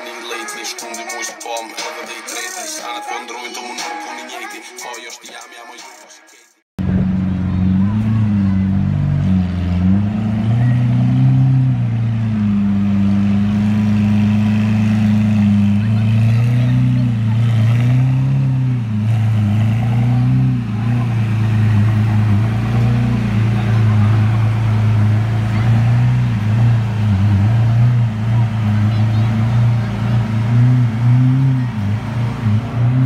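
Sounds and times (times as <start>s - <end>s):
car engine at low revs: 6.8s - 33.0s
engine throttle blips: 6.8s - 33.0s.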